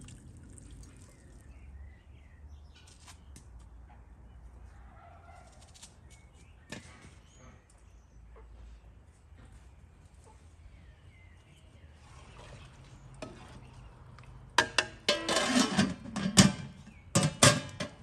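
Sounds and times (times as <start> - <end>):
metal pot knocks and scrapes: 13.2 - 13.8, 14.5 - 18.0.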